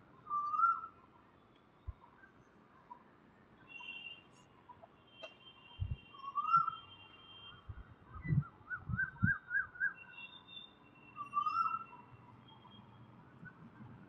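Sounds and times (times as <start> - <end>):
thin high bird whistles: 5.2 - 6.9.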